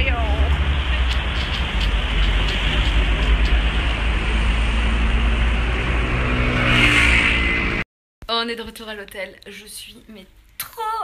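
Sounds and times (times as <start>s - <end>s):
street traffic: 0.0s - 7.9s.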